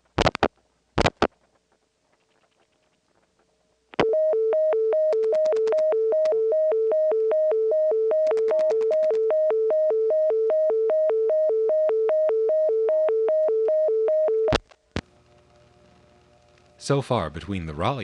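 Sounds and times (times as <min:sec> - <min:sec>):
two-pitch telephone tone: 0:04.0 - 0:14.6.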